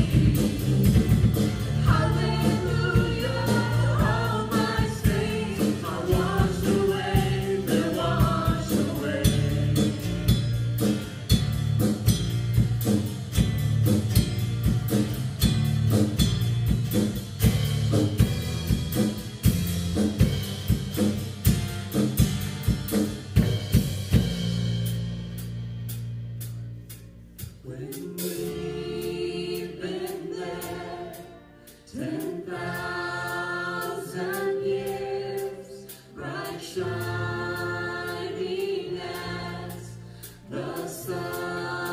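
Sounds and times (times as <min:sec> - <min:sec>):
people singing softly: 0:00.0 - 0:10.4, 0:27.6 - 0:41.9
drum kit: 0:00.0 - 0:41.9
live worship band playing: 0:00.0 - 0:41.9.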